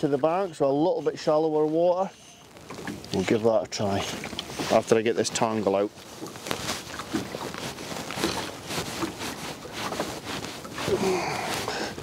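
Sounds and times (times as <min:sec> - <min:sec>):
fly line rubbing through fingers: 0:06.4 - 0:11.8.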